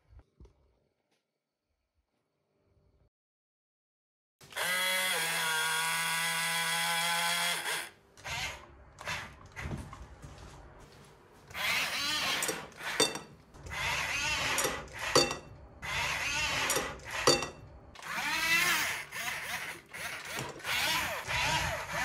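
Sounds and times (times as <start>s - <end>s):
toy electric motors whining: 4.5s - 9.7s, 11.5s - 15.2s, 15.8s - 17.3s, 18.0s - 22.0s.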